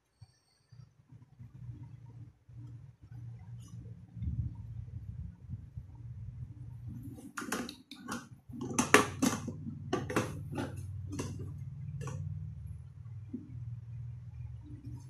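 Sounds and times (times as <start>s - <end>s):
low steady hum: 0.0s - 15.0s
plastic clicks and knocks: 7.0s - 12.3s.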